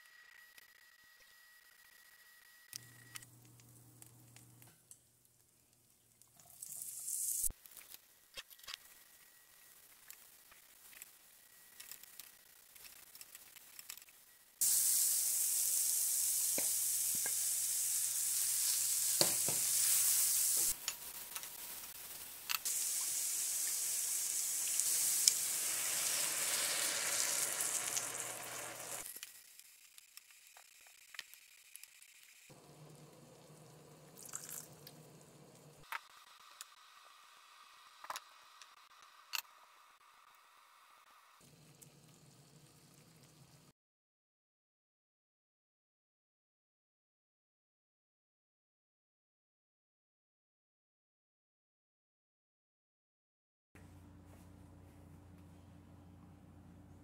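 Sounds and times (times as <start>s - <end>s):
onions and beef sizzling in skillet: 14.6s - 29.7s, 32.5s - 35.9s.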